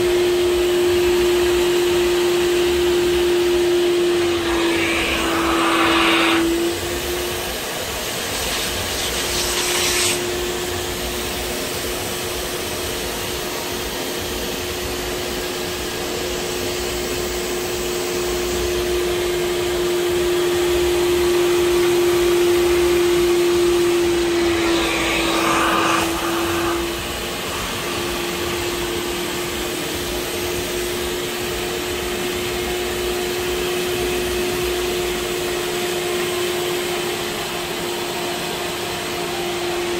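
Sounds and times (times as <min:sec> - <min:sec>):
suction motor whining hum: 0:00.0 - 0:35.7
harsh suction hiss: 0:04.2 - 0:07.1, 0:08.1 - 0:10.3, 0:23.7 - 0:28.9.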